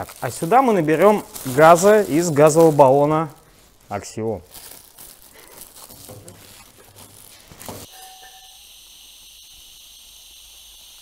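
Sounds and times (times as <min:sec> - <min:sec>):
plastic bag crinkling: 0:00.0 - 0:07.9
gas hissing from canister: 0:07.5 - 0:11.0.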